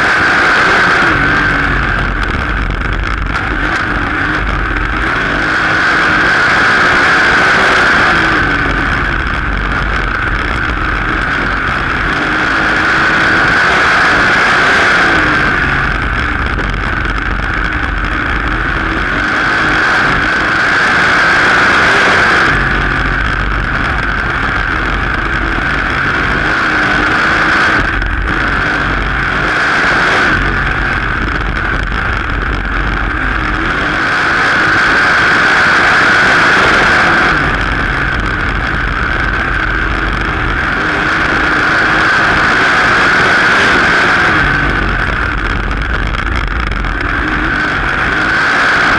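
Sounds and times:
race car engine running hard: 0.0 - 48.9.

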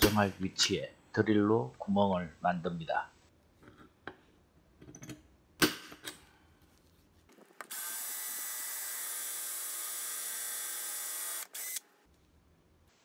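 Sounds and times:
electric drill whining: 7.6 - 11.9.

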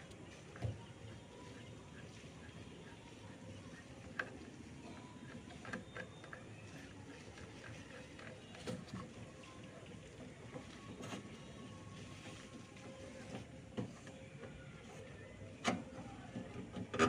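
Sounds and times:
small clicks and taps on pipes: 3.3 - 11.5.

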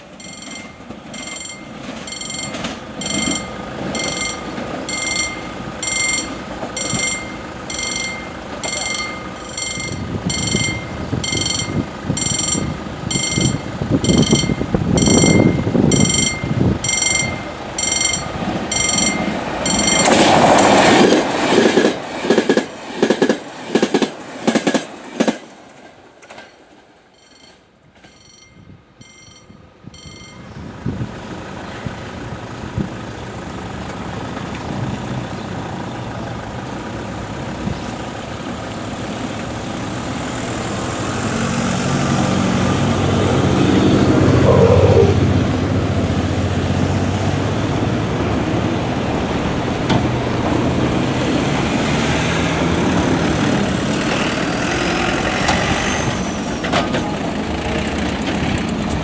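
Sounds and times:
engine hum: 0.0 - 24.4, 26.9 - 59.0
wheels clattering over rail joints: 0.0 - 30.4, 52.5 - 59.0
train passing at speed: 0.0 - 59.0
level crossing bell ringing: 0.2 - 20.3, 27.2 - 30.5.

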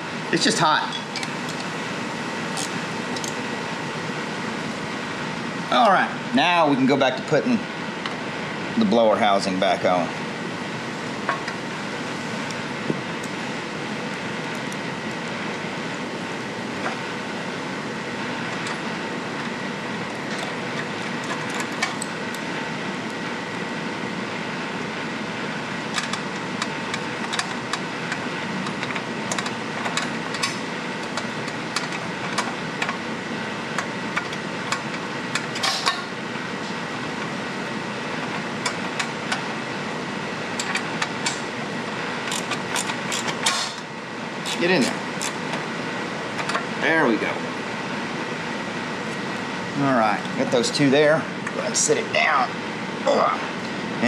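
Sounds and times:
steady background hum: 0.0 - 54.0
hand tools clicking on metal: 42.3 - 43.8.

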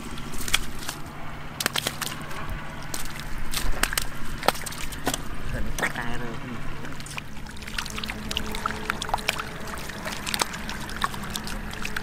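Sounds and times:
low steady hum: 0.0 - 12.0
wet slaps of fish flopping: 0.4 - 1.0, 1.6 - 2.2, 2.9 - 5.9.

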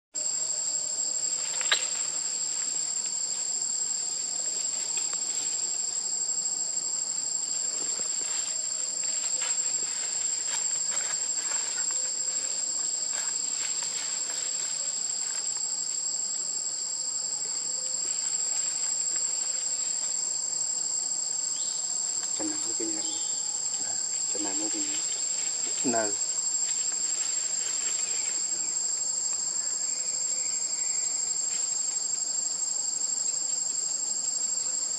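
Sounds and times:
shrill insect chorus: 0.2 - 34.9.

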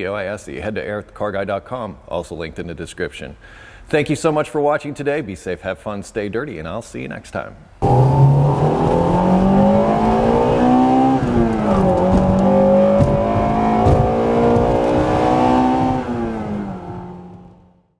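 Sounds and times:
car engine accelerating hard: 7.8 - 17.7.

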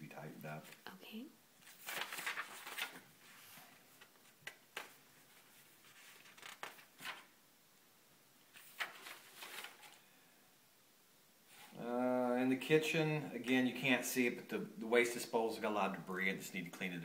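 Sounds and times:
paper pages rustling: 1.6 - 7.4, 8.5 - 10.0.

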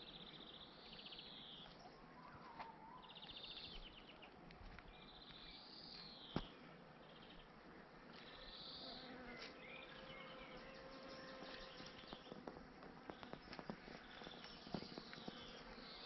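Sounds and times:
footsteps on forest floor: 2.4 - 6.6, 11.4 - 15.9
bee buzzing: 8.8 - 16.0.

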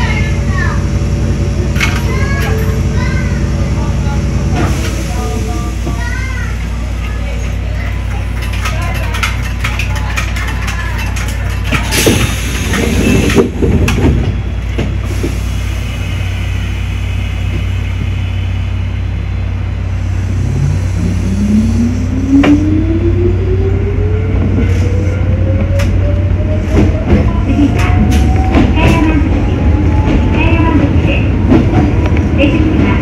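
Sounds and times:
electric train running hum: 0.0 - 33.0
wheels clicking over rail joints: 5.9 - 14.9.

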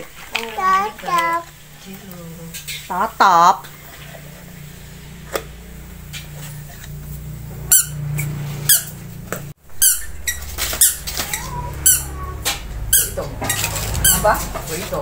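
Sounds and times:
steady low hum: 0.0 - 15.0
high-pitched squeaky chirps: 7.7 - 8.0, 9.7 - 14.4.

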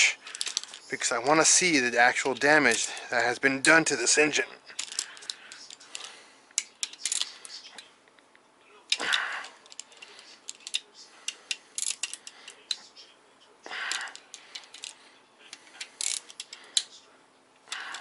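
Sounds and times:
ratchet wrench clicking: 16.0 - 16.9.

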